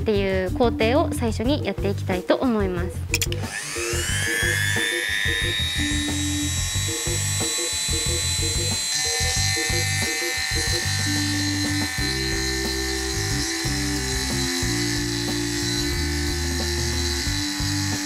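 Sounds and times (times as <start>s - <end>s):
burr grinding metal: 3.2s - 18.0s
rotary tool whining: 3.2s - 18.0s.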